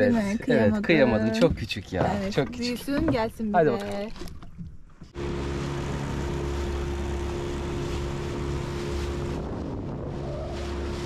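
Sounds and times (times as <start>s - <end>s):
wind: 0.0s - 11.0s
motorboat engine hum: 3.8s - 11.0s
rushing water from wake: 5.1s - 11.0s.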